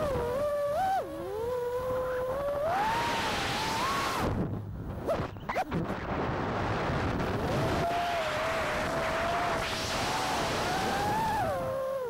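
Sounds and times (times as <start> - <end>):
drone motors whining: 0.0 - 5.7, 7.3 - 12.0
wind noise rush: 2.4 - 11.8.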